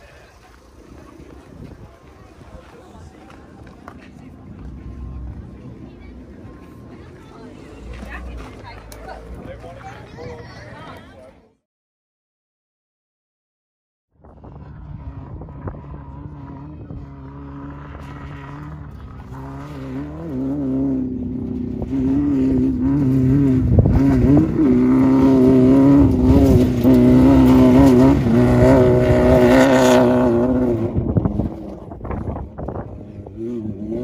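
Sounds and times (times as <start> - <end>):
race car engine passing: 14.2 - 34.0.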